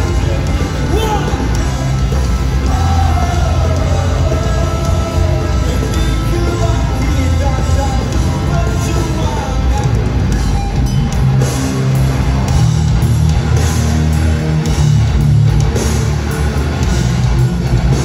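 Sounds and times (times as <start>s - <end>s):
live rock band playing: 0.0s - 18.0s.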